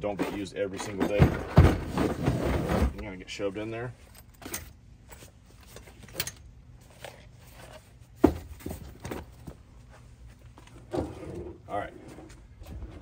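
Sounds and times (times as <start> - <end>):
tool case knocking and scraping: 0.0 - 3.0, 7.6 - 9.6.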